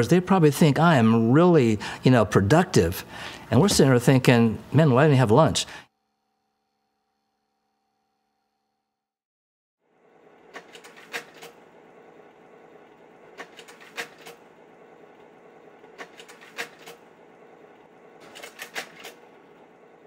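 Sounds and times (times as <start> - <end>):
projector fan hum: 0.0 - 5.9, 9.9 - 20.0
slide carousel clicking: 10.3 - 20.0.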